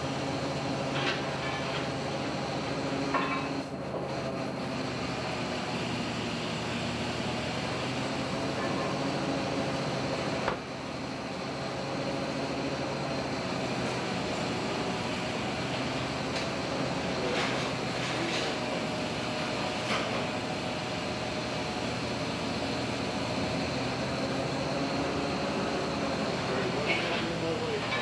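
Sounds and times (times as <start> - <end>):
engine and deck machinery droning: 0.0 - 28.0.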